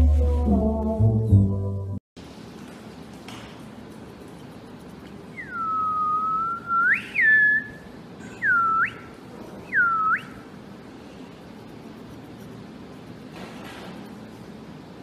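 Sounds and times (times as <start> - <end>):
person whistling gliding notes: 5.3 - 7.8.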